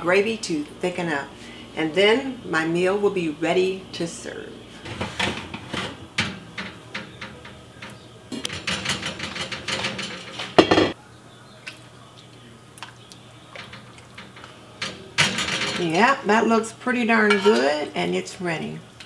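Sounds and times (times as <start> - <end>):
cast iron lid clattering: 4.9 - 11.0, 17.2 - 17.9
loud metal clank: 10.6 - 11.0.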